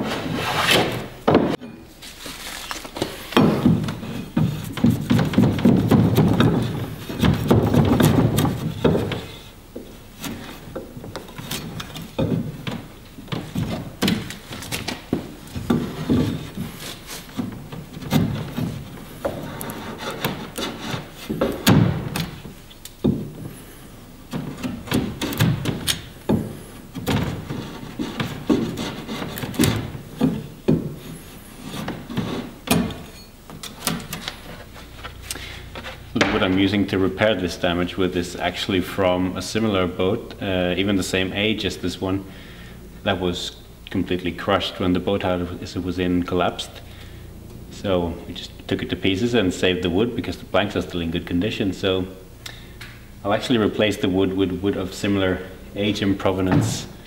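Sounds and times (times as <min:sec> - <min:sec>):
axe shaving wood: 0:15.7 - 0:21.7, 0:27.0 - 0:30.4.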